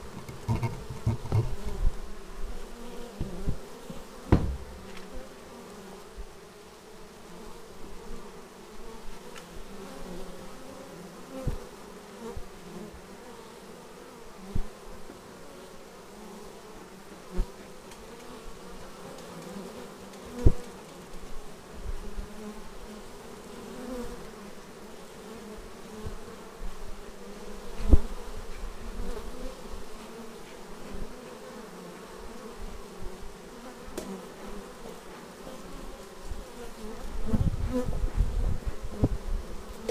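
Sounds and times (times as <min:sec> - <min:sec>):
dense hum of many bees: 0:00.0 - 0:39.9
single bees buzzing past: 0:00.0 - 0:39.9
brief loud knocks: 0:04.3 - 0:05.0.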